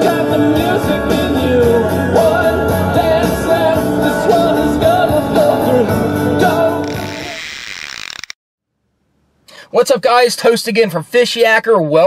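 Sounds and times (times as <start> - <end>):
rock song with singing: 0.0 - 7.3.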